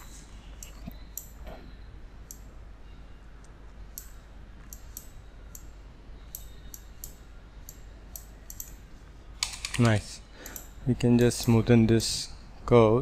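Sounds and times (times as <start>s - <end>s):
faint low hum: 0.0s - 13.0s
computer mouse clicking: 6.3s - 8.8s, 9.4s - 11.6s.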